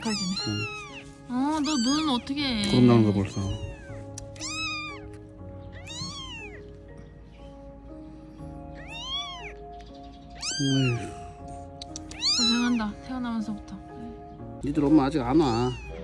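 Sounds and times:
kitten mewing: 0.0 - 1.0, 1.6 - 6.7, 8.8 - 9.6, 10.3 - 13.0, 15.4 - 16.0
light background music: 0.0 - 16.0.

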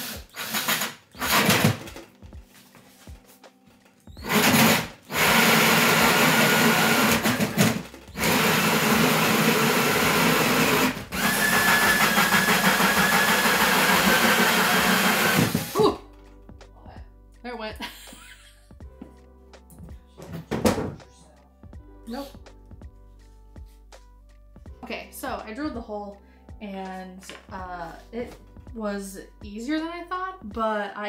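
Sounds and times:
drill with hole saw cutting: 0.0 - 1.8, 4.2 - 15.8.

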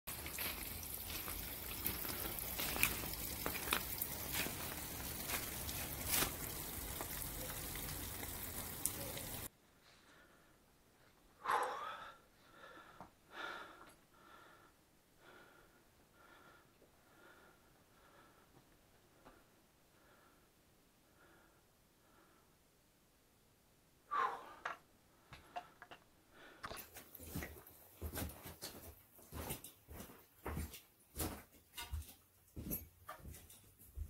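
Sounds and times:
crackles: 0.1 - 9.5
short breaths: 11.4 - 18.6, 24.1 - 26.9.

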